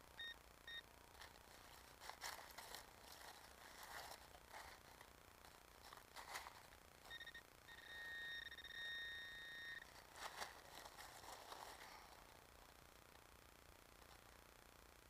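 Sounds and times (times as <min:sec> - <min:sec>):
metal detector electronic tone: 0:00.2 - 0:00.9, 0:07.0 - 0:10.0
probe scraping in soil and leaves: 0:01.1 - 0:07.9, 0:09.8 - 0:12.3.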